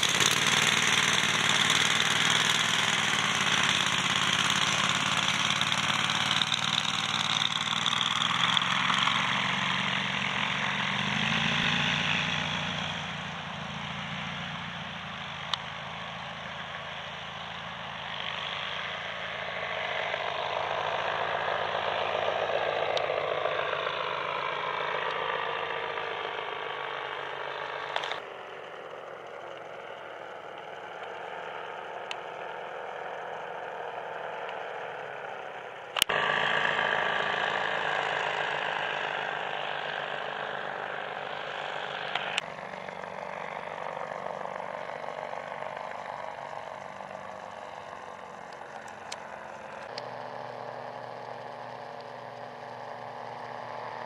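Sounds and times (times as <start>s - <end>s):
paramotor engine droning: 0.0s - 54.0s.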